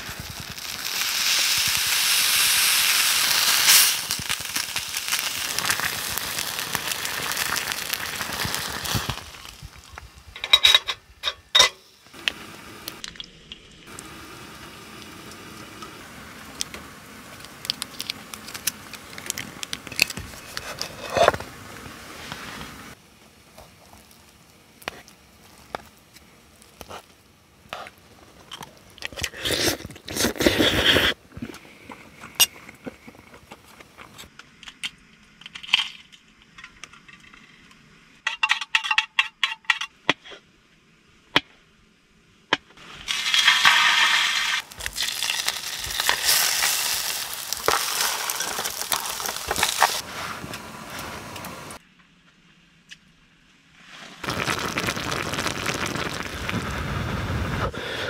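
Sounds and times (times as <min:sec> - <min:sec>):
sauce sizzling and hissing: 0:00.0 - 0:10.0, 0:29.1 - 0:31.2, 0:42.8 - 0:51.8, 0:53.9 - 0:58.0
utensils clinking on metal dishes: 0:10.4 - 0:11.8.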